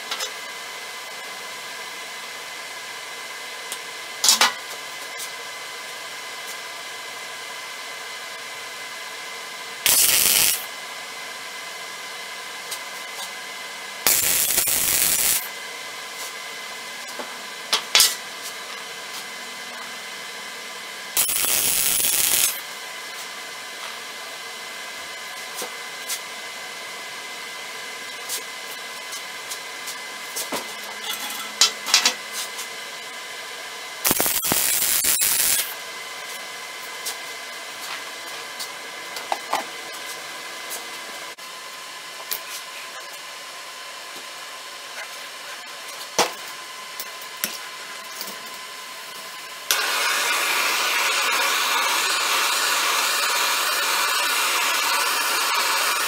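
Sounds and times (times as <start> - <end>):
welding arc crackling and hissing: 9.8 - 10.8, 14.0 - 15.5, 21.1 - 23.4, 34.0 - 37.4, 49.2 - 56.0.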